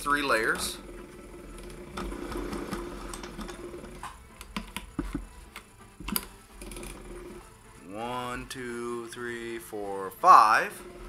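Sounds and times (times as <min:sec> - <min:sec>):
sewing machine humming: 0:00.0 - 0:04.1, 0:06.6 - 0:07.5, 0:10.8 - 0:11.0
sharp clicks and knocks: 0:01.6 - 0:06.9.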